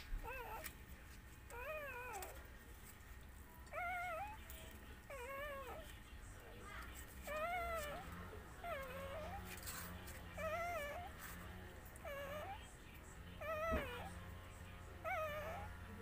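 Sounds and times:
puppy whimpering: 0.0 - 0.8, 1.5 - 2.5, 3.6 - 6.0, 6.6 - 12.7, 13.4 - 14.3, 15.0 - 15.9.

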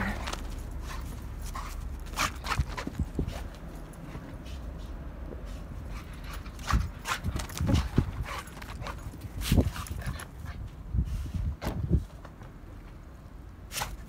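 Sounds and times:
paws crunching through snow: 0.0 - 10.2.

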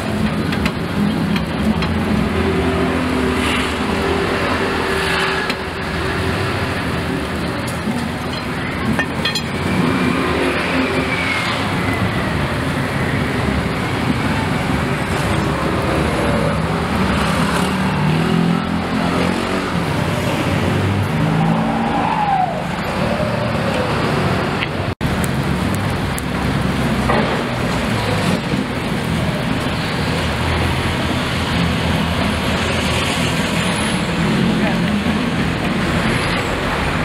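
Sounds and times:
passing engines: 0.0 - 37.0
road traffic: 0.0 - 37.0.

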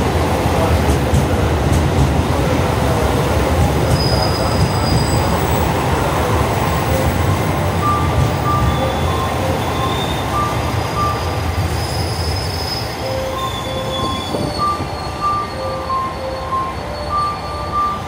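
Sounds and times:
train rumbling: 0.0 - 18.0
two-pitch beeps: 7.8 - 11.4, 13.1 - 18.0
wheel and brake squeals: 7.8 - 18.0.

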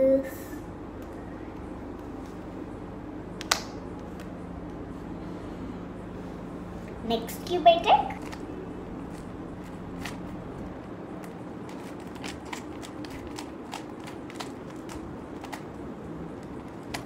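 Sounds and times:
steady low hum: 0.0 - 17.0
puzzle cube clicking: 11.7 - 15.7.

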